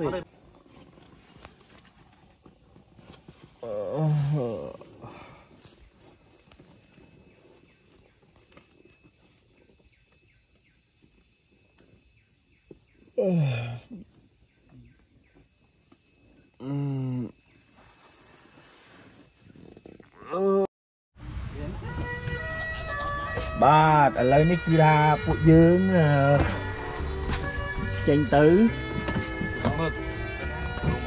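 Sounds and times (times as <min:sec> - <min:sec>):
insects trilling: 0:00.0 - 0:20.7.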